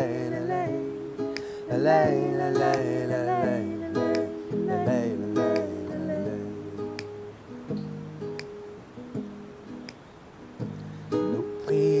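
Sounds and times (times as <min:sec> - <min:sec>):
person singing wordless vocals: 0:00.0 - 0:07.2, 0:11.2 - 0:12.0
acoustic guitar strumming: 0:00.0 - 0:12.0.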